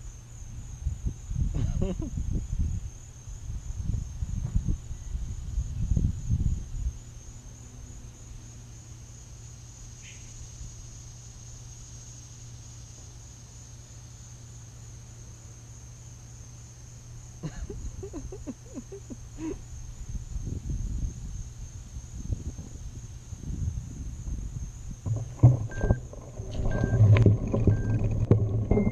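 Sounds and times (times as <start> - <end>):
insects buzzing chorus: 0.0 - 28.9
low rumble: 23.6 - 28.9
knocks: 25.0 - 28.9.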